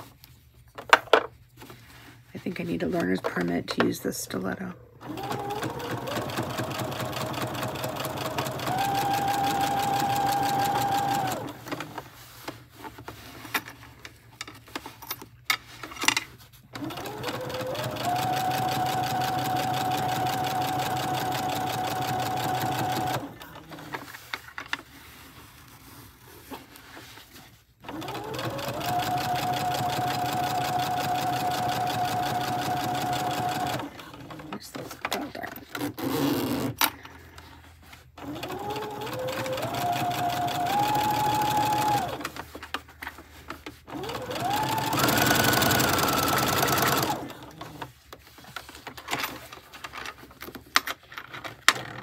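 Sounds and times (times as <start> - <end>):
sewing machine motor whine: 5.0 - 12.0, 16.8 - 24.0, 27.8 - 34.1, 38.2 - 42.4, 43.9 - 47.9.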